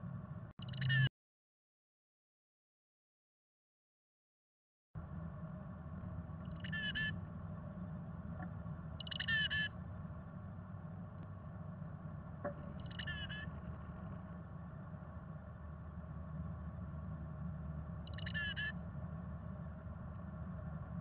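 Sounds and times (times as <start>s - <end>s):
steady low hum: 0.0s - 1.1s, 5.0s - 21.0s
chickadee calling: 6.5s - 7.2s, 9.0s - 9.7s, 12.8s - 13.5s, 18.0s - 18.8s.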